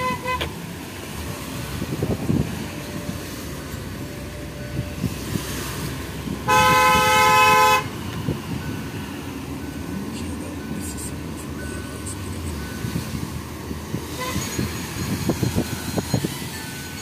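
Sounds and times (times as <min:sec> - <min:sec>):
vehicle horn: 0:00.0 - 0:00.6, 0:06.4 - 0:08.0, 0:14.1 - 0:14.7
road traffic rumble: 0:00.0 - 0:17.0.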